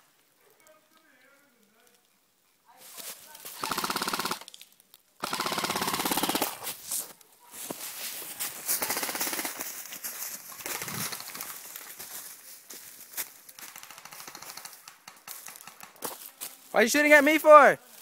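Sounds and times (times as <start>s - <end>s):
footsteps crunching dry leaves: 2.7s - 3.6s, 6.5s - 13.7s, 15.2s - 17.2s, 17.8s - 18.0s
airsoft gun full-auto burst: 3.6s - 4.5s, 5.2s - 6.7s, 8.8s - 9.7s, 13.6s - 16.0s.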